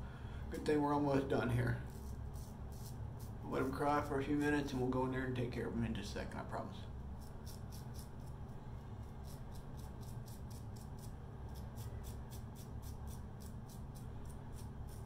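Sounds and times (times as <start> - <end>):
low steady hum: 0.0 - 15.0
razor scraping stubble: 1.8 - 4.8, 7.2 - 15.0.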